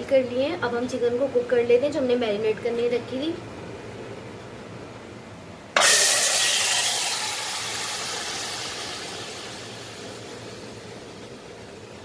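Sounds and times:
chicken sizzling in hot pan: 5.8s - 11.7s.

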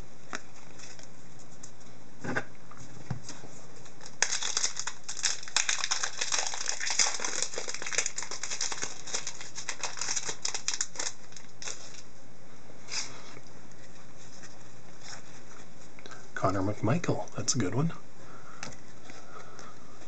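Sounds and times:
brief wrapper rustle: 4.0s - 12.1s
foil wrapper crinkling: 4.0s - 12.1s.

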